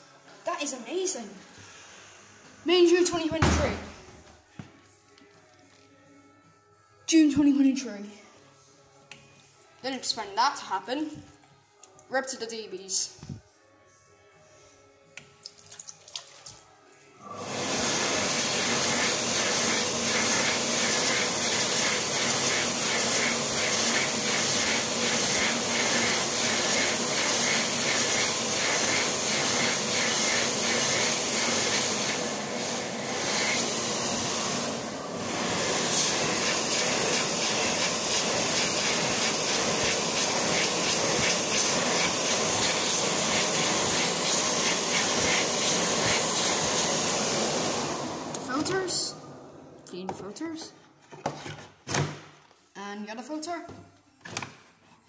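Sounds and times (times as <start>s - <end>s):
hand dryer blowing: 17.2s - 49.8s.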